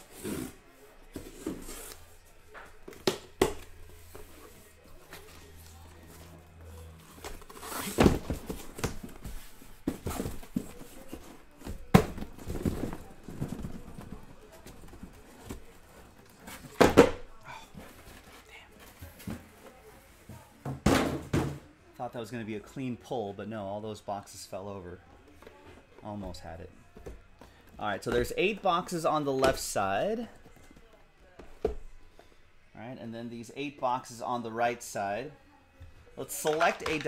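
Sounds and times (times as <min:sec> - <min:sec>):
cardboard boxes knocking and thumping: 0:07.2 - 0:15.8, 0:20.6 - 0:21.6.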